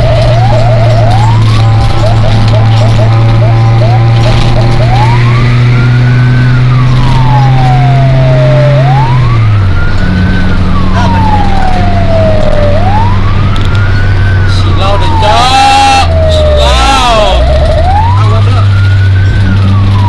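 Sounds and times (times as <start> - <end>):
fire engine wail siren: 0.0 - 20.0
truck engine drone: 0.0 - 20.0.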